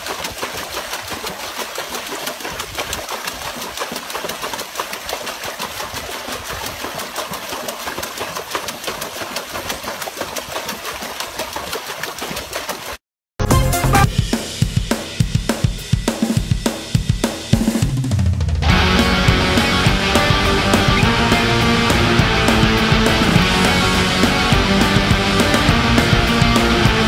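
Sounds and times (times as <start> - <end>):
dog splashing water in tub: 0.0 - 13.0.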